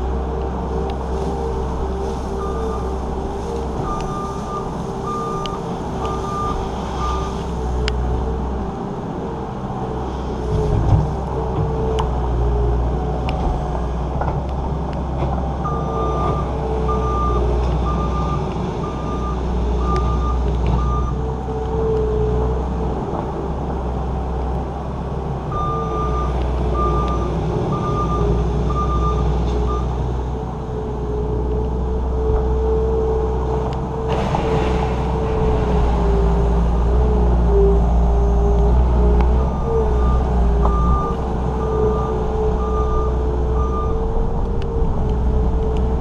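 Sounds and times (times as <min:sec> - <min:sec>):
diesel engine running: 0:00.0 - 0:46.0
reverse alarm beeping: 0:03.9 - 0:07.3
rough rushing noise: 0:34.0 - 0:37.4.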